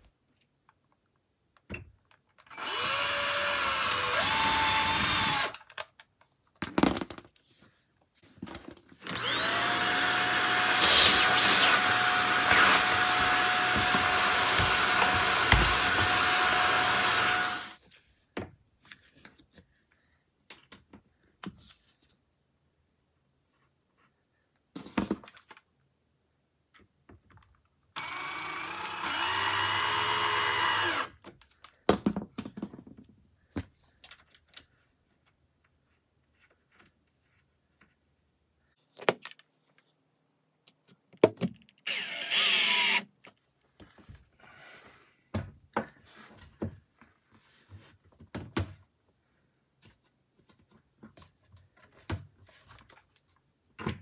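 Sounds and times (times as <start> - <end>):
power drill whining: 2.5 - 5.6, 9.0 - 17.8, 28.0 - 31.2, 41.8 - 43.1.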